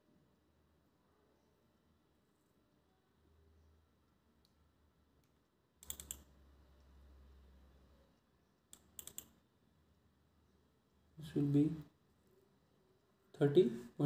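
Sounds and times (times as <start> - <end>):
faint low hum: 0.0 - 14.0
computer keyboard keystrokes: 5.8 - 6.3, 8.7 - 9.4.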